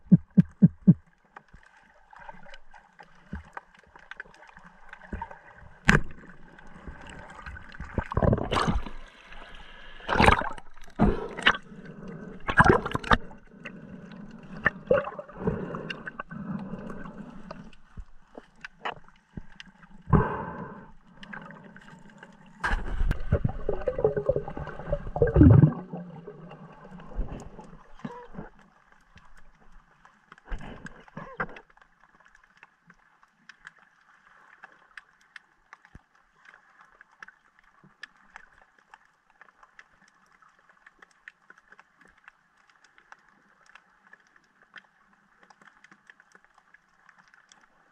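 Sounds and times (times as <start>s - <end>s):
bubbling: 0.0s - 1.0s, 4.6s - 28.6s.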